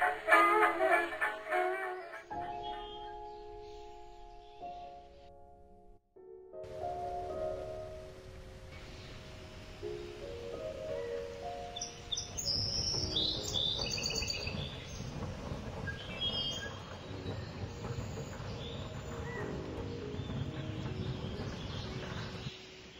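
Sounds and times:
soft sustained low musical notes: 0.0 - 15.8
birds chirping: 1.9 - 5.6, 8.8 - 22.9.

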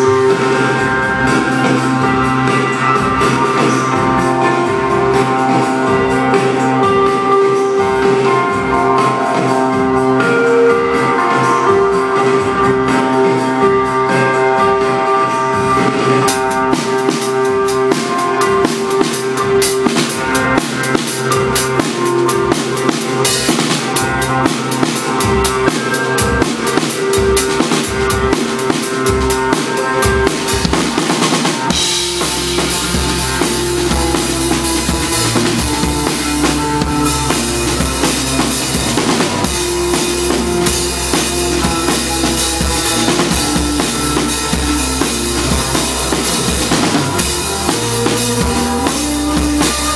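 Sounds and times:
live band playing: 0.0 - 49.9
heavy low bass: 31.6 - 49.9.

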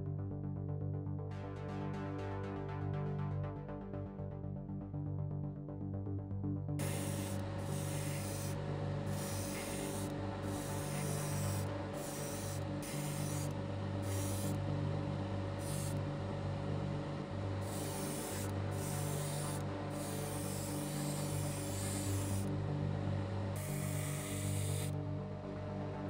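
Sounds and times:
airbrush spraying hiss: 6.8 - 14.6, 15.6 - 16.0, 17.6 - 22.5
steady hum: 6.8 - 26.0.

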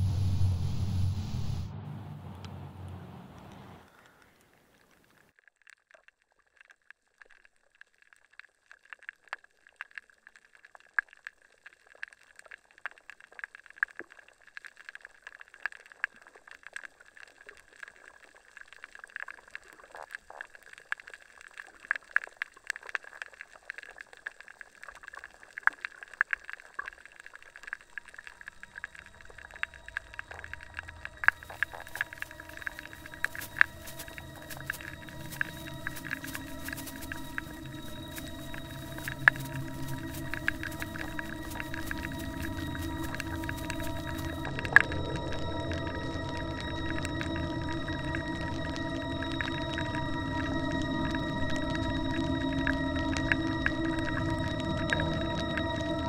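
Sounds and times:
crackling and popping clicks: 2.4 - 56.0
thin high tone: 28.4 - 56.0.

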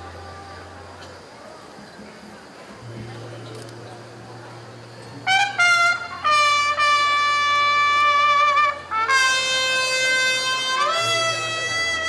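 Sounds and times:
solo wind instrument: 0.0 - 1.7, 4.1 - 12.0.

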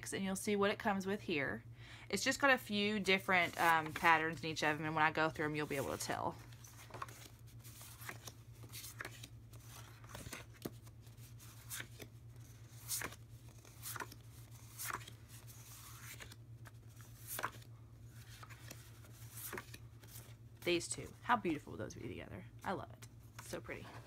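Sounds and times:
faint low hum: 0.0 - 24.0
paper sheets swishing: 5.6 - 17.6.

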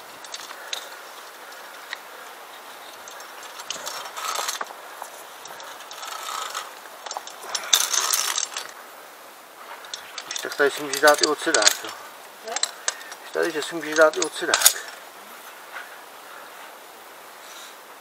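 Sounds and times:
carabiners clinking on steel cable: 0.0 - 8.8, 9.7 - 15.0.

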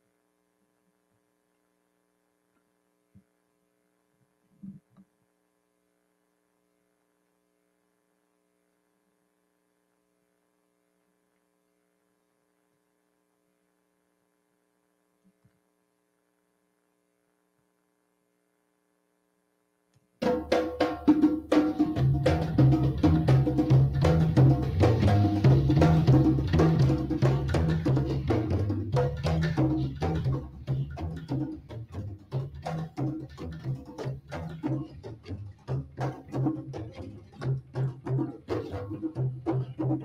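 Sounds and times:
faint steady hum: 0.0 - 40.0
drum-led percussion music: 20.2 - 40.0.

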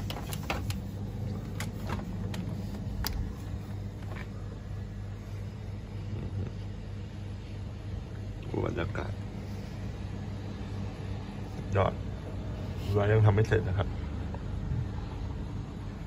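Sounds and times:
constant hum: 0.0 - 16.0.

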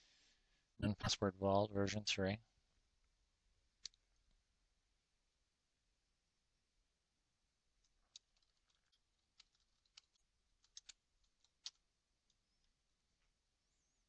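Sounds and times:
keyboard typing: 7.8 - 12.8.

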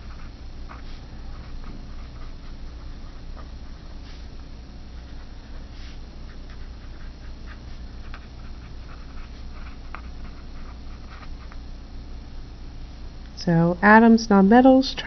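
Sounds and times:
pen scratching on paper: 0.0 - 4.3, 5.0 - 11.5
steady low hum: 0.0 - 15.0.

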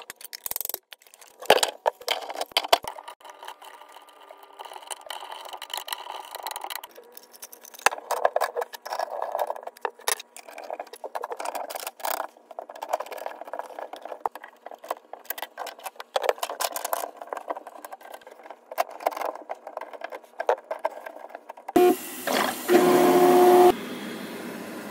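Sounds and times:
plastic pipes clicking and scraping: 0.0 - 22.8.

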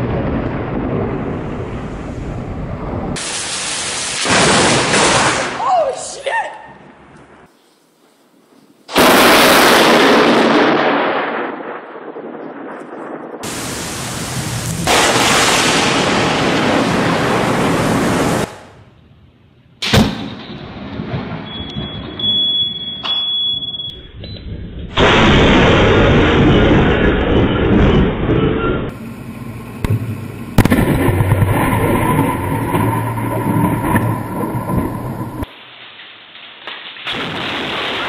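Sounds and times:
sharp thunder crack: 0.0 - 5.6, 8.9 - 18.7, 19.8 - 22.3, 24.5 - 29.0, 29.8 - 35.5, 37.0 - 38.0
thunder crashing and rumbling: 0.0 - 5.6, 8.9 - 18.7, 19.8 - 22.8, 24.0 - 35.5, 37.1 - 38.0.

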